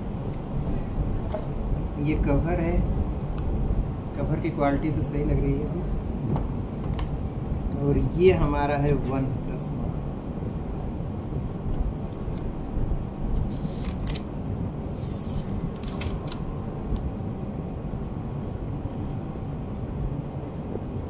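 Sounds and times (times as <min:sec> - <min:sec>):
low background rumble: 0:00.0 - 0:21.0
short hissing rustle: 0:14.9 - 0:16.2.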